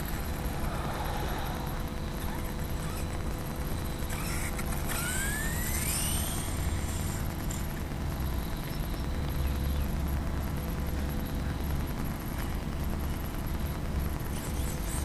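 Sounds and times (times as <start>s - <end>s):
low rumble: 0.0s - 4.2s
electric motor whining: 0.0s - 7.8s
hiss: 0.3s - 3.0s.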